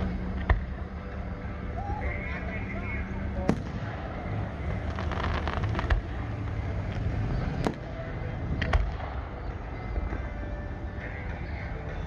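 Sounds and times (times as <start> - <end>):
low background noise: 0.0 - 12.0
fireworks bangs: 3.4 - 9.2.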